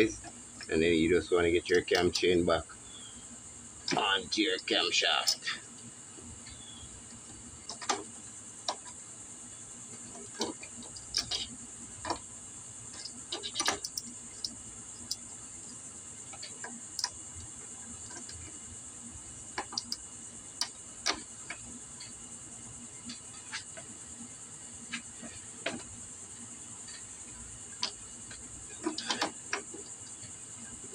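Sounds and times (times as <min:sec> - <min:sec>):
steady high hiss: 0:00.0 - 0:30.9
metallic clicks and clinks: 0:01.8 - 0:02.4, 0:05.2 - 0:05.6, 0:12.9 - 0:15.8.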